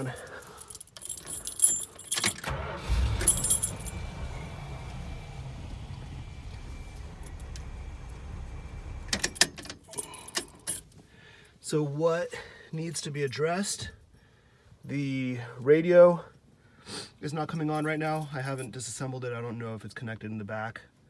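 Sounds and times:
keys jangling: 0.0s - 2.5s, 3.1s - 4.0s, 9.2s - 11.0s
van engine starting and idling: 2.2s - 10.6s.

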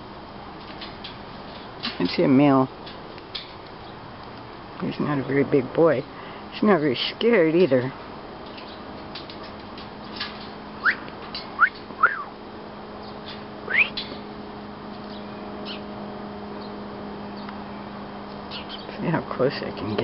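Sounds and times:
steady low hum: 0.0s - 20.0s
bird whistling upward: 10.8s - 12.3s, 13.7s - 14.1s.

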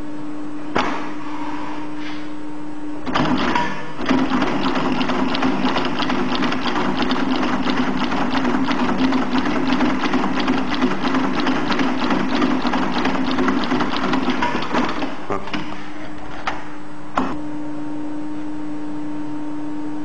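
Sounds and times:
sewing machine motor hum: 3.0s - 16.5s
sewing machine stitching clatter: 3.1s - 15.2s.

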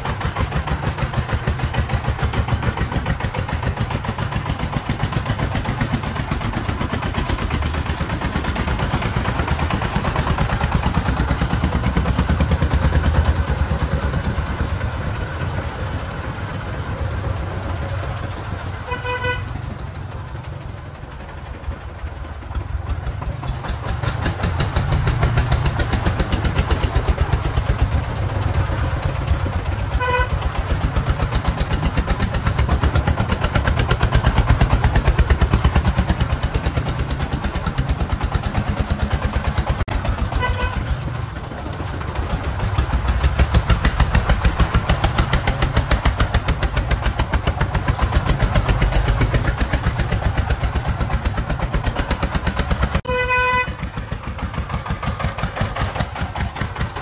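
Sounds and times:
diesel engine chugging: 0.0s - 57.0s
short horn beep: 53.1s - 53.7s.

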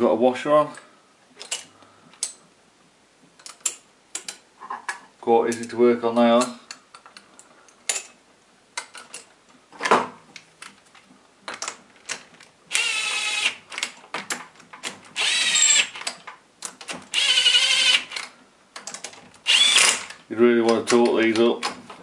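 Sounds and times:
small metal clicks: 3.4s - 4.4s, 18.1s - 21.5s
power drill motor whine: 12.7s - 13.6s, 15.2s - 15.9s, 17.2s - 18.2s, 19.5s - 20.1s.

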